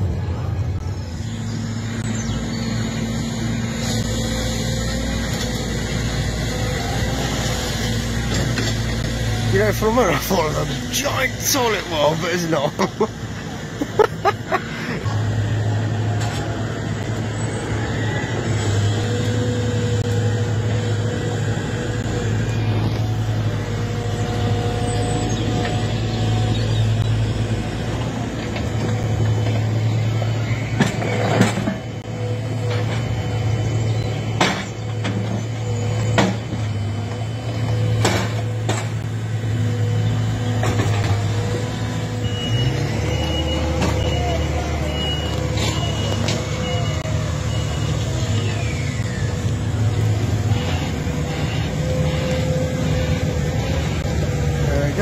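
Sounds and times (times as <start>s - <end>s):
excavator diesel engines running: 0.0s - 55.0s
reversing alarm beeping: 41.2s - 54.6s.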